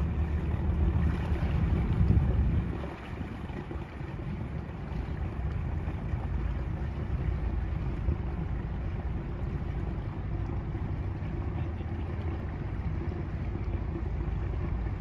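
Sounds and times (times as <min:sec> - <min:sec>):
wind on microphone: 0:00.0 - 0:11.7
boat engine rumble: 0:00.0 - 0:15.0.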